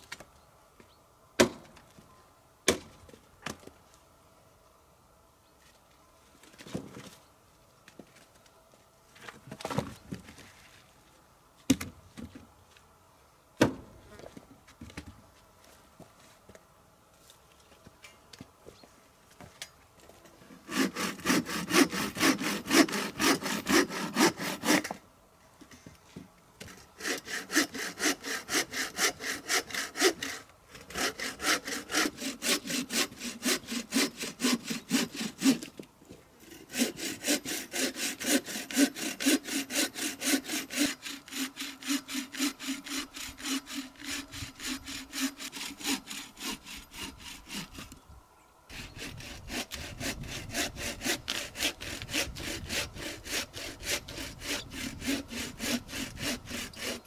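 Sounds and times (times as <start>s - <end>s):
bow saw cutting log: 20.5s - 25.0s, 26.6s - 35.8s, 36.4s - 48.0s, 48.7s - 57.0s.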